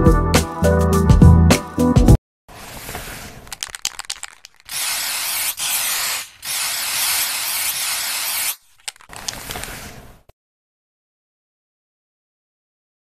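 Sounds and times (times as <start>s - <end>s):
aerosol spray can hissing: 3.6s - 8.6s
sharp clicks: 8.5s - 9.6s.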